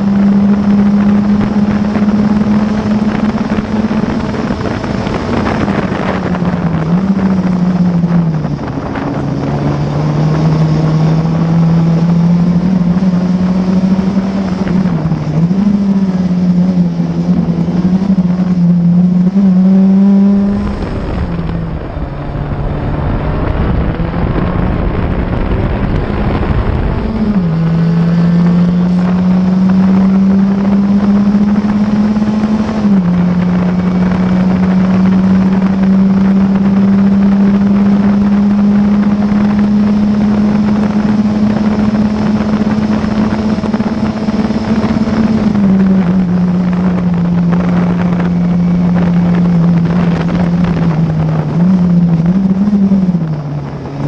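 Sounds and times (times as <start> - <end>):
race car engine at high revs: 0.0 - 54.0
rumbling noise: 0.0 - 54.0
wind noise: 0.0 - 54.0.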